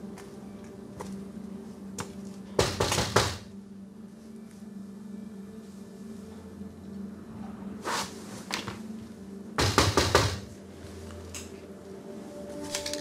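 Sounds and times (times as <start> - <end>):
low steady hum: 0.0 - 13.0
loud banging on a door: 2.6 - 3.5, 9.6 - 10.5.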